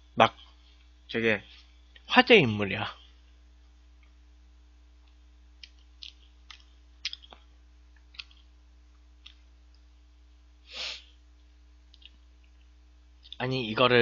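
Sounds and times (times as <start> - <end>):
low electrical hum: 0.0 - 14.0
mouth clicks and smacks eating: 5.1 - 9.9, 11.8 - 13.4.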